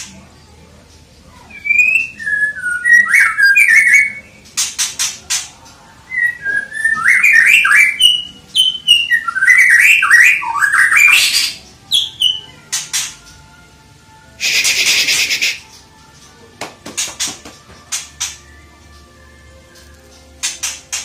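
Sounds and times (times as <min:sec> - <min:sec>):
bird singing whistled notes: 0:01.5 - 0:04.5, 0:06.1 - 0:13.1, 0:14.4 - 0:15.8
sharp bird clicks: 0:14.4 - 0:15.8, 0:20.4 - 0:21.0.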